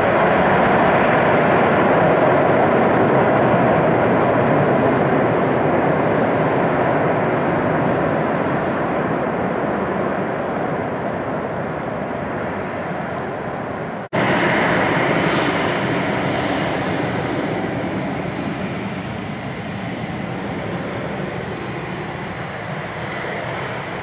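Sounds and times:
jet engines rumbling: 0.0s - 24.0s
high engine whine: 12.6s - 24.0s.

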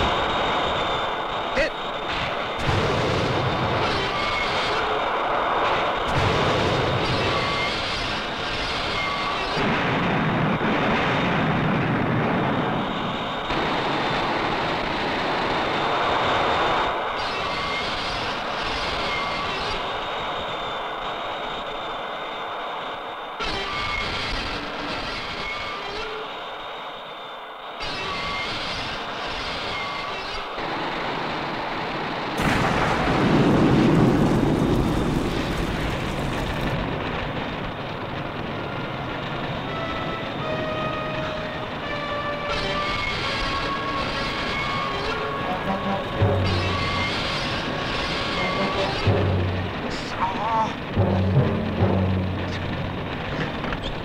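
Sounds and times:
fire rushing noise: 0.0s - 25.5s, 28.0s - 54.0s
explosion blast with rumbling roar: 2.1s - 19.8s, 32.4s - 40.5s, 42.6s - 54.0s
jet engine rushing: 30.7s - 54.0s.

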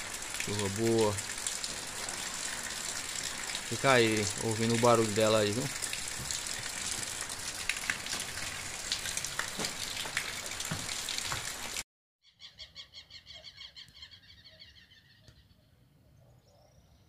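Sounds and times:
dripping taps: 0.0s - 11.8s
steady rain: 0.0s - 11.8s
water pouring onto leaves: 0.0s - 11.8s.

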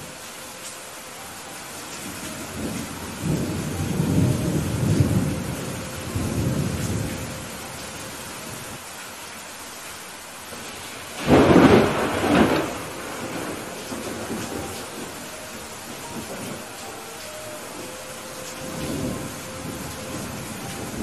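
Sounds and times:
heavy rain falling: 0.0s - 21.0s
rolling thunder rumble: 2.3s - 7.6s, 10.5s - 16.8s, 18.6s - 21.0s
sharp thunderclap: 11.2s - 15.0s.

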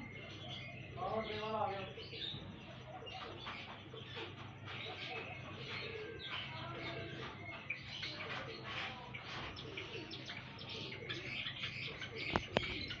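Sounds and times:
sparrows chirping and twittering: 0.0s - 13.0s
low cooing: 4.2s - 7.4s, 8.4s - 13.0s.

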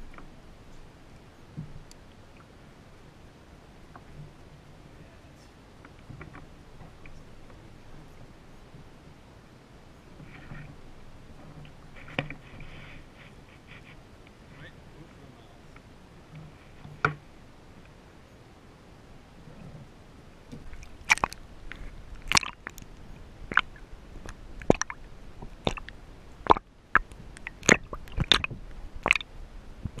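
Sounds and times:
underwater rumble of moving water: 0.0s - 17.8s, 18.8s - 30.0s
sharp underwater clicks and knocks: 5.8s - 7.6s, 11.4s - 13.9s, 20.5s - 30.0s.

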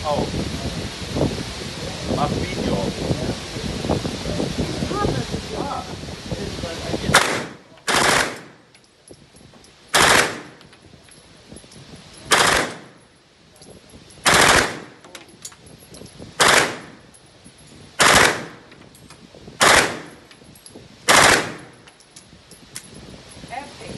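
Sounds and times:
gunshots: 7.1s - 8.6s, 10.0s - 10.6s, 12.3s - 12.9s, 14.2s - 15.0s, 16.4s - 17.0s, 18.0s - 18.6s, 19.6s - 20.1s, 21.1s - 21.7s.

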